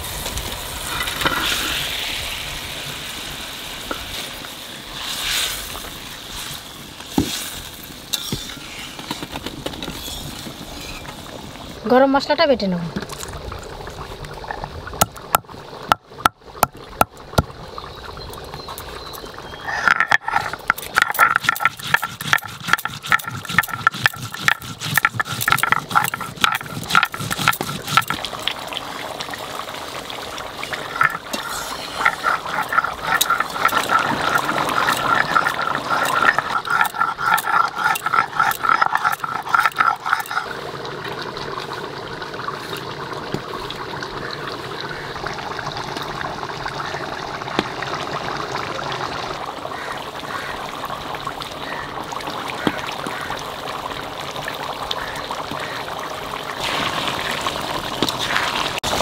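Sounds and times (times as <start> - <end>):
stone grinding on stone: 19.7 - 28.2, 30.8 - 40.5.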